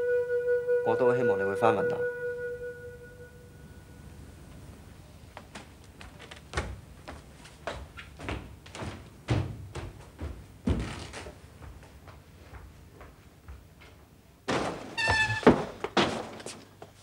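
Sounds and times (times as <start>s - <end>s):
irregular knocks and thuds: 6.5s - 16.6s.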